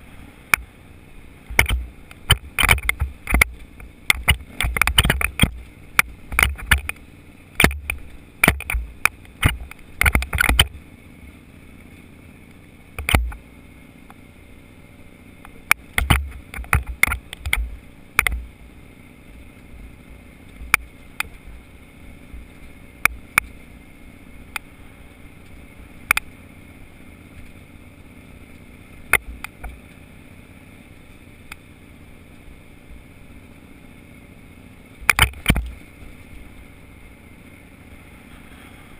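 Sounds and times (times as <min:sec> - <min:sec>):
wind and riding noise: 0:00.0 - 0:38.9
knocks and rattles over rocks: 0:01.5 - 0:10.8, 0:13.0 - 0:13.4, 0:15.5 - 0:18.5, 0:35.0 - 0:35.9.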